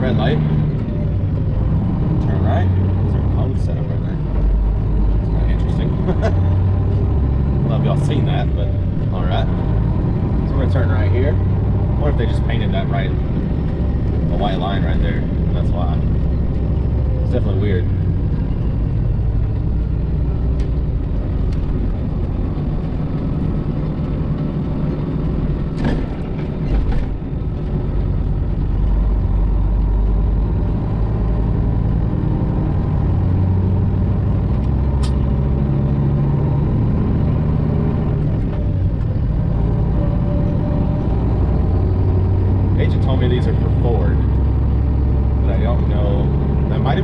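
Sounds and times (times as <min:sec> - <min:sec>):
truck engine drone from cab: 0:00.0 - 0:47.0.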